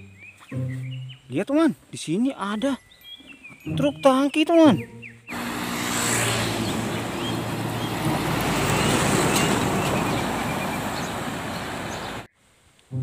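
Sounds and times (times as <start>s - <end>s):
truck driving past: 5.3s - 12.3s.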